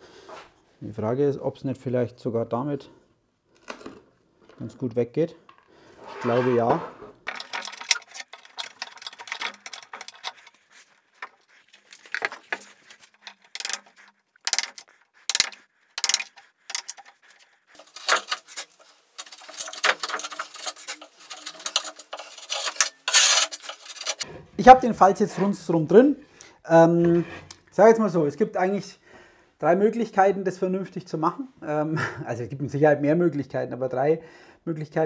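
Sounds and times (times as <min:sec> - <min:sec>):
chisel scraping wood: 0:06.0 - 0:25.9, 0:26.8 - 0:27.6.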